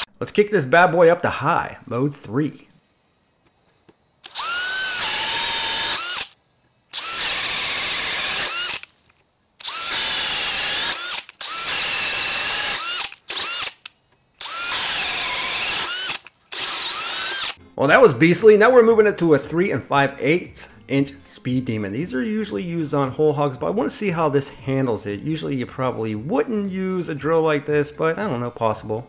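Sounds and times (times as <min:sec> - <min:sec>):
drill boring into wood: 0:04.2 - 0:08.9, 0:09.6 - 0:17.6.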